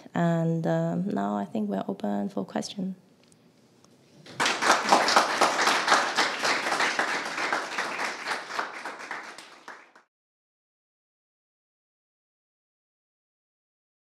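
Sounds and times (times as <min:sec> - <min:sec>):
audience applauding: 0:04.3 - 0:10.1.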